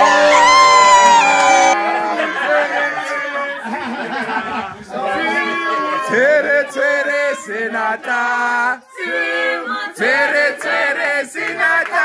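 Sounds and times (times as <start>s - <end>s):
choir singing: 6.1s - 11.9s.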